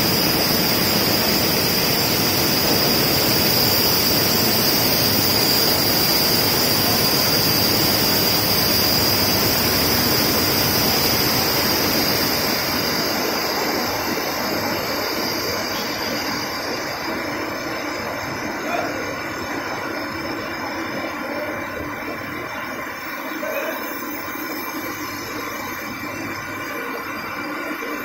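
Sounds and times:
thin high whistle: 0.0s - 19.0s.

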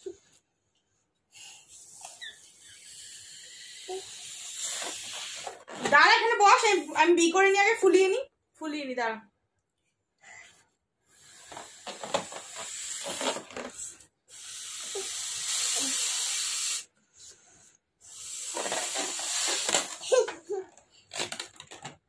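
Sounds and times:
person drawing breath: 1.3s - 5.6s, 10.2s - 11.8s, 14.3s - 19.8s
breath blowing up balloon: 1.3s - 5.9s, 11.1s - 20.1s.

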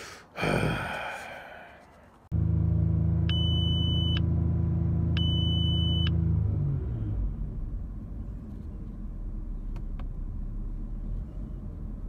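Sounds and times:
car engine running steady: 2.3s - 12.0s.

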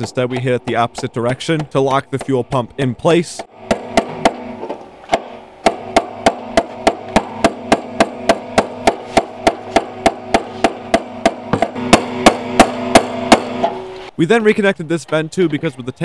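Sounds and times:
hammer striking metal punch: 3.4s - 14.0s.

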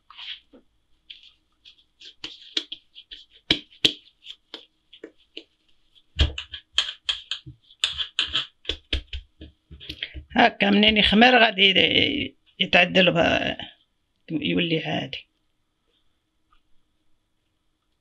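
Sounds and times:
hands rubbing dough: 0.0s - 11.1s
dull pats on dough: 0.4s - 11.0s.

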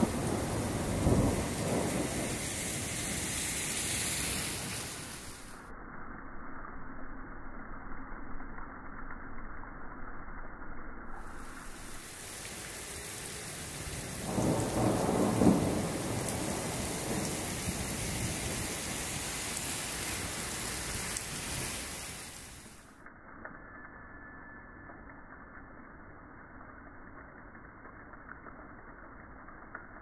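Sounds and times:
thunder rolling: 0.0s - 5.5s, 11.3s - 19.6s
rain hissing: 0.0s - 5.7s, 11.1s - 23.1s.

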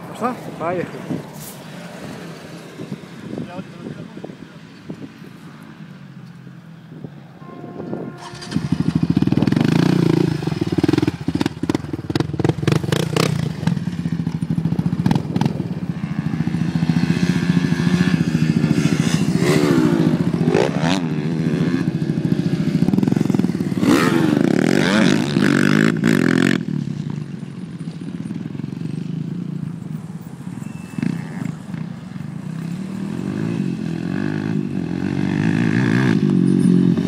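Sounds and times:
quad bike engine revving: 8.2s - 29.8s, 30.6s - 37.0s.

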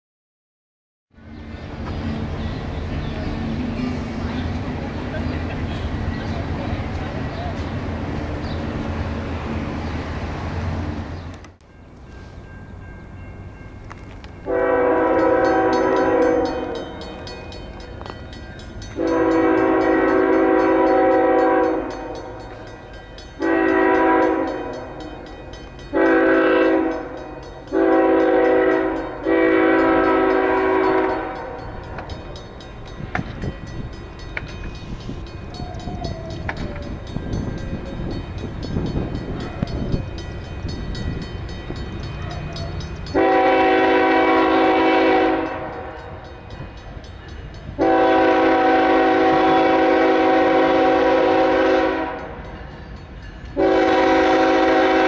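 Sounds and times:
train rumbling: 1.1s - 55.0s
locomotive air horn blasts: 14.4s - 16.9s, 19.0s - 22.4s, 23.4s - 25.1s, 25.9s - 31.8s, 43.1s - 46.2s, 47.8s - 52.5s, 53.6s - 55.0s.

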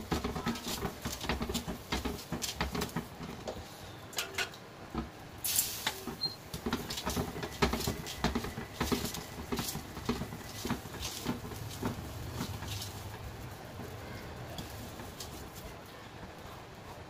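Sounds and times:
roti patted on hot griddle: 0.0s - 3.6s, 4.2s - 13.3s
light taps and crackles: 0.0s - 16.5s.

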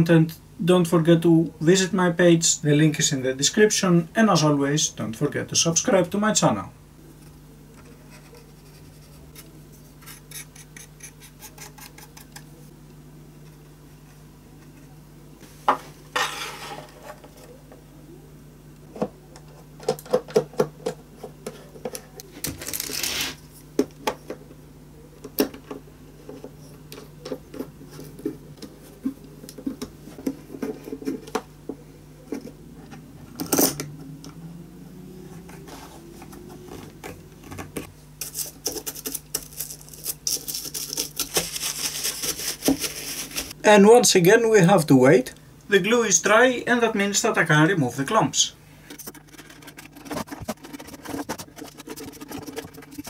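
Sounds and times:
steady low hum: 0.0s - 53.0s
rubbing and rustling: 35.4s - 43.6s, 48.8s - 53.0s.

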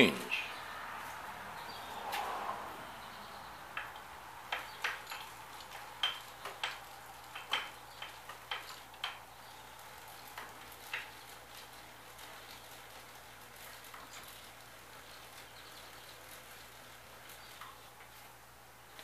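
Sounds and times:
chain and sprocket clicking: 3.7s - 18.2s.

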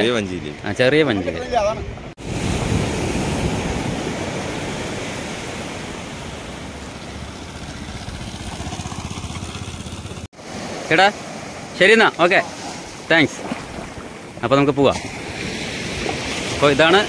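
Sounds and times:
wind: 0.0s - 17.0s
surf: 0.8s - 17.0s
motorcycle engine passing: 6.6s - 10.3s.

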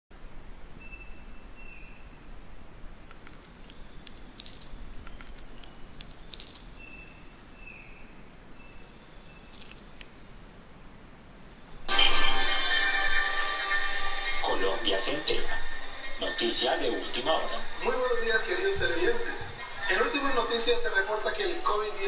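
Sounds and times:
faint clicks: 3.0s - 6.8s.

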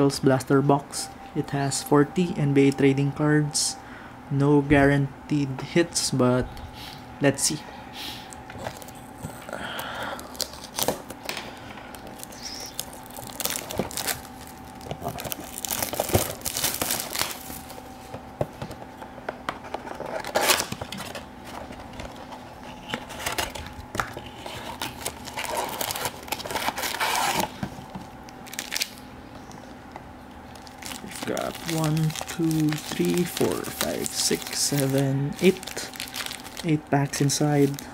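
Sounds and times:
plastic wrap crinkling and tearing: 10.2s - 11.3s, 12.1s - 17.9s, 22.8s - 27.6s, 28.4s - 29.0s, 30.4s - 37.9s.

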